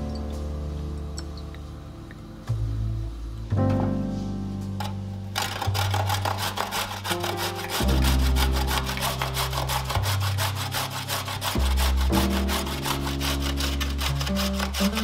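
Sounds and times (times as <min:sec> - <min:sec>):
background music: 0:00.0 - 0:15.0
carrot rasping on grater: 0:05.4 - 0:15.0.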